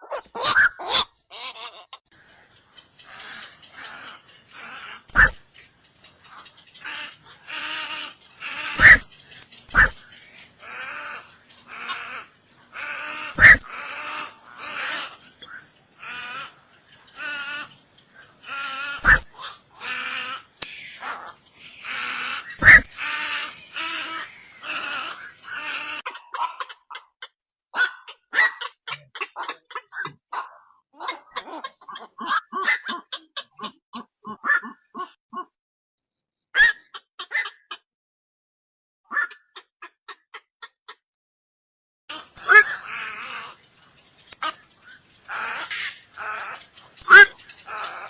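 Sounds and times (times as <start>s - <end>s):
heron croaking squawks: 0.0s - 1.7s, 3.1s - 5.4s, 6.4s - 16.6s, 18.4s - 27.1s, 27.8s - 35.5s, 36.6s - 37.8s, 39.1s - 41.0s, 42.1s - 43.6s, 45.2s - 48.0s.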